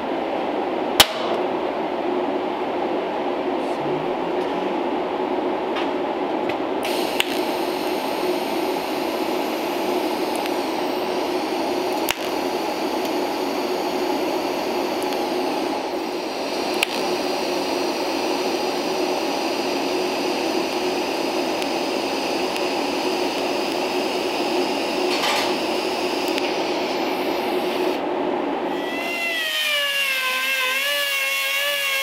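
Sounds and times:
sharp clicks: 6.8s - 7.5s, 10.2s - 10.6s, 11.9s - 12.4s, 15.0s - 15.3s, 16.7s - 17.1s, 26.2s - 26.5s
welding arc hissing: 6.8s - 28.0s, 28.7s - 32.0s.

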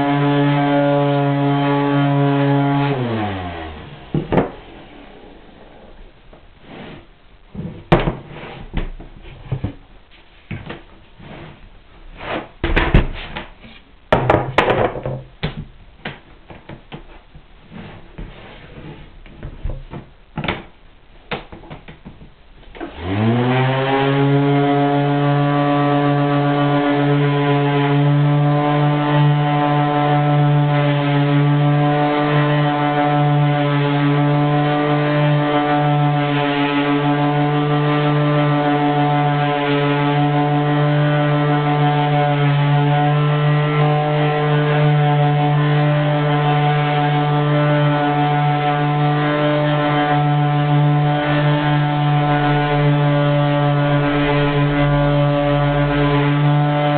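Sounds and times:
orbital sander whining: 0.0s - 7.0s, 22.7s - 56.9s.

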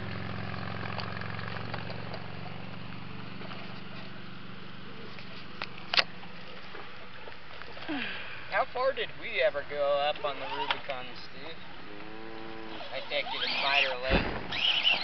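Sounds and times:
small motor humming: 10.1s - 15.0s.

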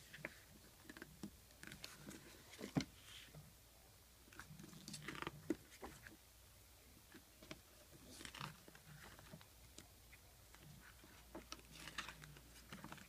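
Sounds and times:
page turning rustle: 8.1s - 9.5s, 10.6s - 13.0s
paper crinkles and clicks: 11.3s - 13.0s.

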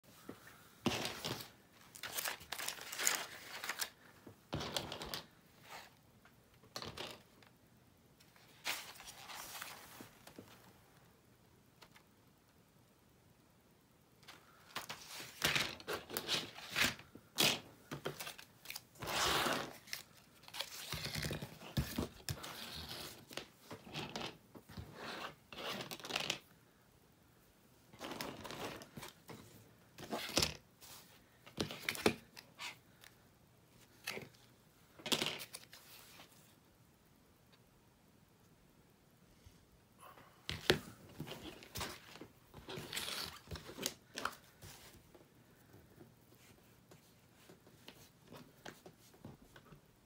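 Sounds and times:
craft materials rustling and scraping: 8.4s - 10.7s, 40.5s - 45.1s.

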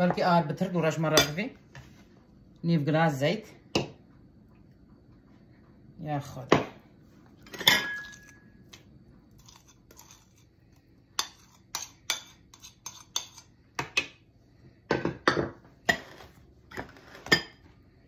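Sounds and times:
spoon clinking on ceramic bowl: 7.5s - 8.4s.

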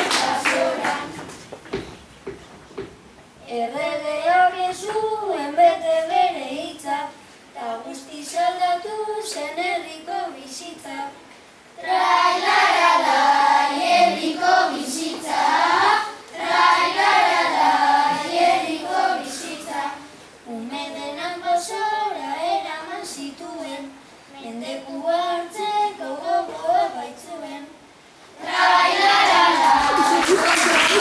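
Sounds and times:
children singing unaccompanied: 0.0s - 1.4s, 3.5s - 7.1s, 11.8s - 27.7s, 28.4s - 31.0s.

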